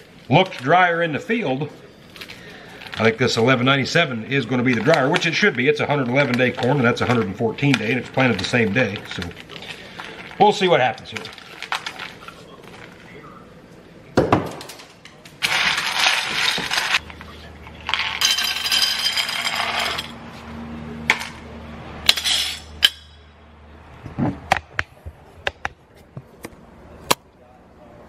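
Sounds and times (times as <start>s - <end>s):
corn kernels pouring and rattling: 15.4s - 17.0s.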